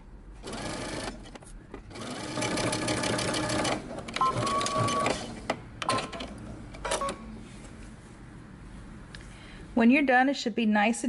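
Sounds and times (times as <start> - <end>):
sewing machine stitching: 1.9 - 6.3
machine beeps: 4.2 - 5.2, 6.9 - 7.3.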